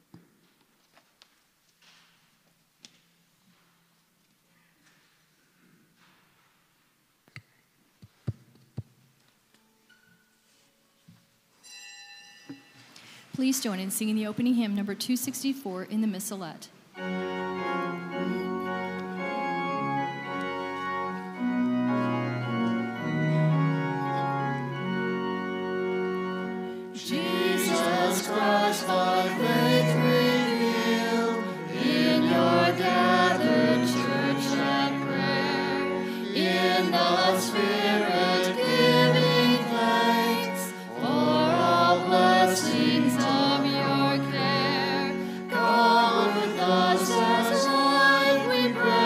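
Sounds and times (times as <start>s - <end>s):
church organ playing: 16.9s - 49.0s
voices singing a hymn: 17.3s - 49.0s.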